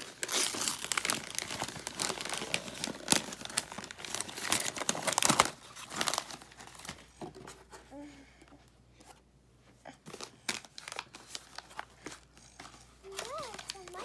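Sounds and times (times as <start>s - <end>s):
wrapping paper crinkling: 0.0s - 7.1s, 10.2s - 14.0s.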